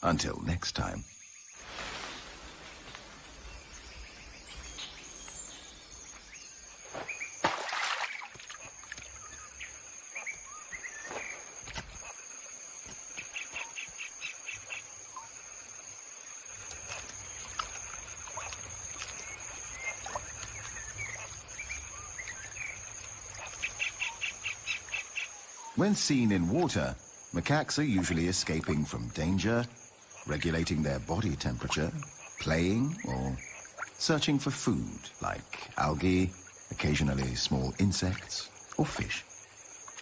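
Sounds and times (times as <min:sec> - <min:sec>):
bird chirps: 0:03.3 - 0:07.4.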